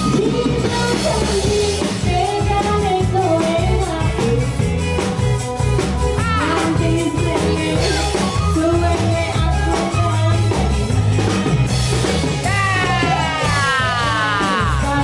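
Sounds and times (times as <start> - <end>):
women singing: 0.0 - 4.6, 6.2 - 10.5, 13.1 - 15.0
drum kit: 0.0 - 15.0
electric bass guitar: 0.0 - 15.0.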